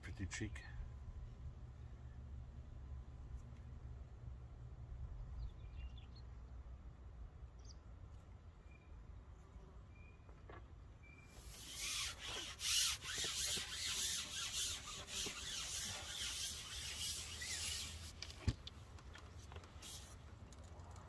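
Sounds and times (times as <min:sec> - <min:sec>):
fishing pole rasping rub: 0:11.4 - 0:18.4, 0:19.8 - 0:20.2.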